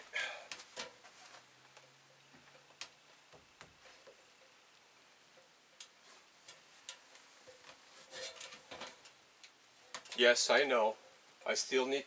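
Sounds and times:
faint sharp ticks and taps: 0.5s - 7.8s, 8.7s - 10.2s.

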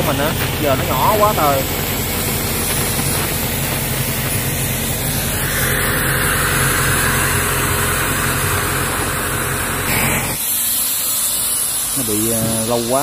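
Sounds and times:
engine running: 0.0s - 10.4s
gas torch hissing: 0.0s - 13.0s.

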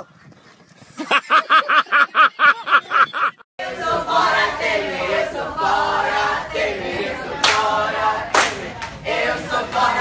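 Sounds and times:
group of voices singing: 3.6s - 10.0s.

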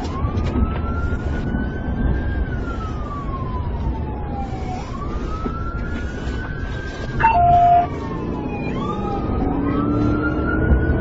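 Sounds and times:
engine and road rumble: 0.0s - 11.0s
police siren wailing: 0.0s - 11.0s.

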